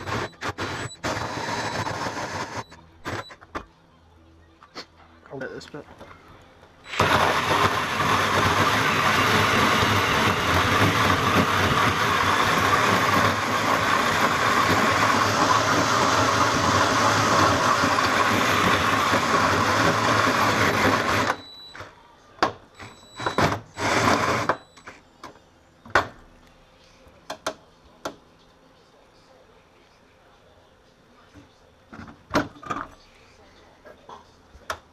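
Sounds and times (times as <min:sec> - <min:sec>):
cordless drill cutting sheet metal: 0:00.0 - 0:02.7, 0:23.2 - 0:24.6.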